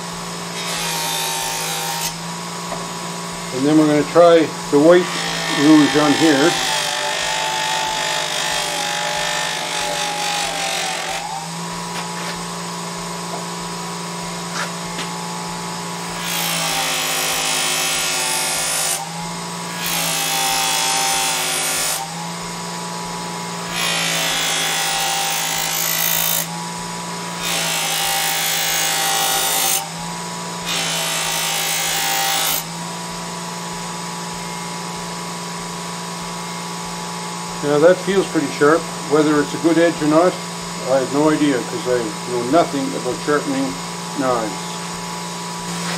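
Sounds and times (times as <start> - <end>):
electric bench buffer running: 0.0 - 45.9
knife blade hissing on buffing wheel: 3.0 - 26.5.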